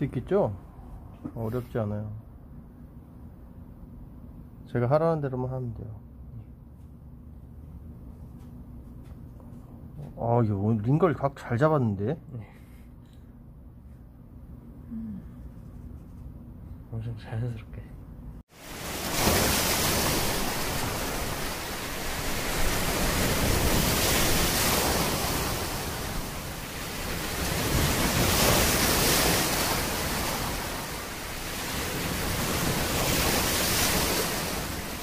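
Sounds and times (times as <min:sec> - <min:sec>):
ocean waves breaking: 0:18.5 - 0:35.0.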